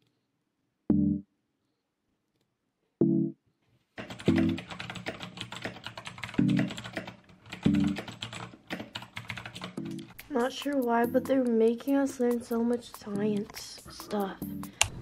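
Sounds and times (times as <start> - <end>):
background music with plucked bass: 0.9 - 1.2
keyboard typing: 4.0 - 14.9.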